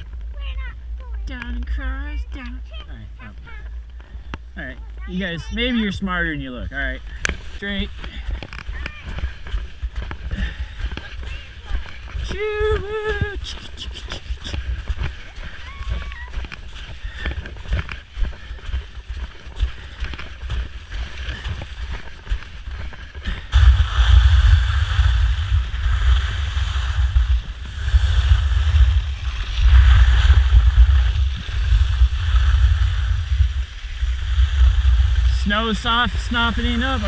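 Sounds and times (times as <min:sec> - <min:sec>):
wind buffeting microphone: 0:06.6 - 0:37.0
skis hissing over snow: 0:07.4 - 0:37.0.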